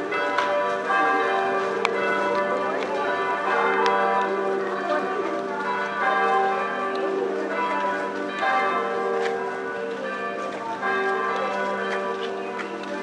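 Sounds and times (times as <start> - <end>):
church bells ringing: 0.0 - 13.0
faint crowd voices: 0.0 - 13.0.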